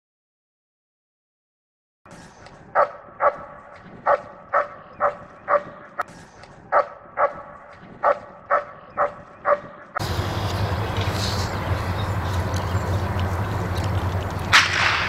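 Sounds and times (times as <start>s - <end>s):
dog barking: 2.7s - 6.0s, 6.7s - 10.0s.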